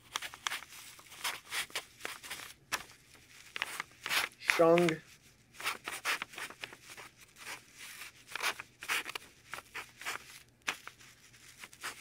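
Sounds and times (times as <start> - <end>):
marker writing on paper: 3.6 - 5.0.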